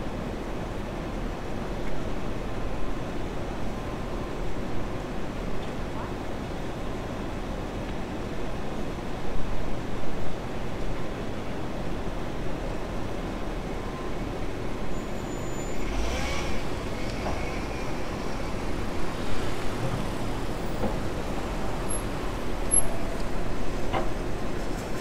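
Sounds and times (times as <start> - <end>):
city traffic rumble: 0.0 - 25.0
cars passing slowly: 14.2 - 25.0.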